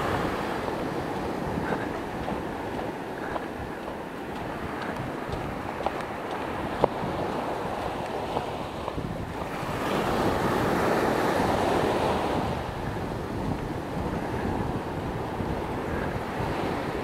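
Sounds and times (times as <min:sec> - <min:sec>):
waves washing up a sandy beach: 0:00.0 - 0:17.0
wind buffeting the microphone: 0:00.0 - 0:17.0.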